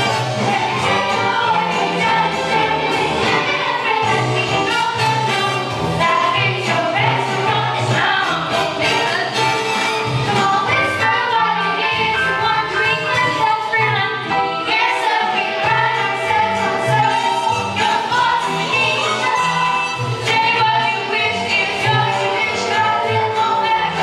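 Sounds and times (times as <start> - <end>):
young voices singing in chorus: 0.0 - 5.2
upbeat accompaniment with pulsing beat: 0.0 - 13.7.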